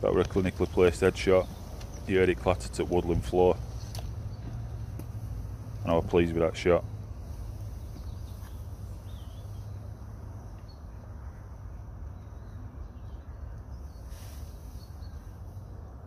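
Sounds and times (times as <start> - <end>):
steady low rumble: 0.0 - 16.0
soft rustle: 6.9 - 10.6, 13.8 - 15.8.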